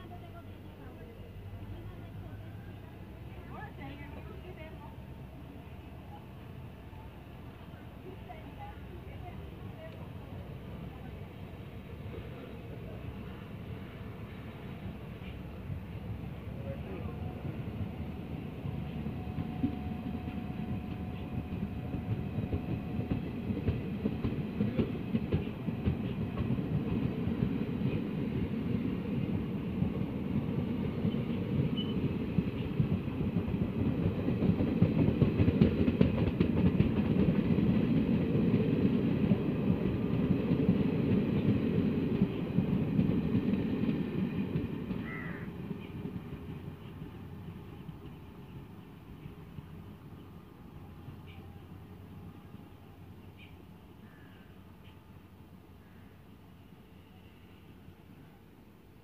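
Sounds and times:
train wheels rumbling on rail: 0:00.0 - 0:55.8
wheels clickety-clack: 0:22.1 - 0:27.6, 0:31.0 - 0:45.0.

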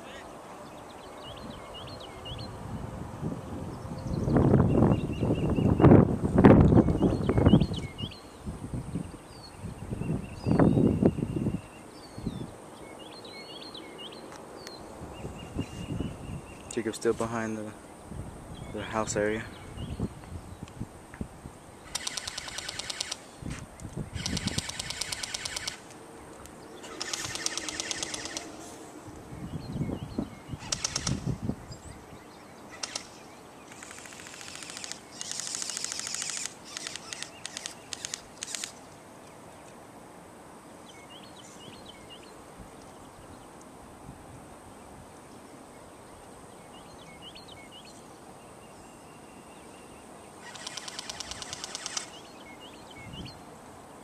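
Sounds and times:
airsoft guns firing bursts: 0:21.9 - 0:23.2, 0:24.2 - 0:25.8, 0:26.9 - 0:28.5, 0:30.6 - 0:31.2, 0:50.4 - 0:52.2.

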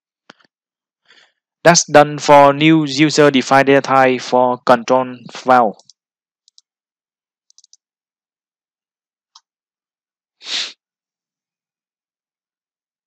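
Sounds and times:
computer mouse clicks: 0:05.8 - 0:06.7, 0:07.5 - 0:07.8
short puff of noise: 0:10.4 - 0:10.8.

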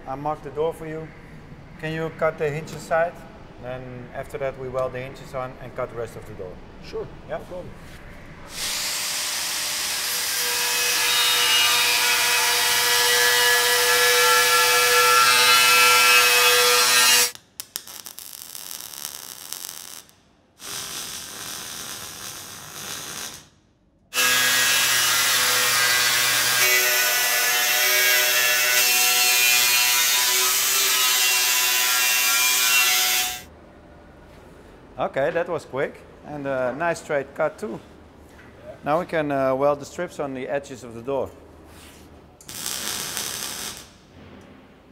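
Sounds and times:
welding crackle: 0:08.5 - 0:10.4, 0:16.0 - 0:23.6, 0:42.4 - 0:44.1
angle grinder cutting steel: 0:24.2 - 0:33.5.

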